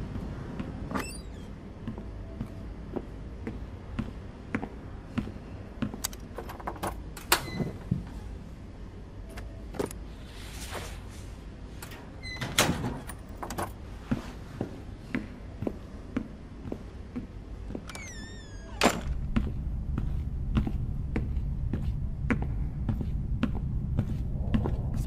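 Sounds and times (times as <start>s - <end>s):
low steady rumble: 0.0s - 25.0s
locker door opening and shutting: 6.0s - 8.0s, 11.8s - 13.8s, 17.8s - 19.2s.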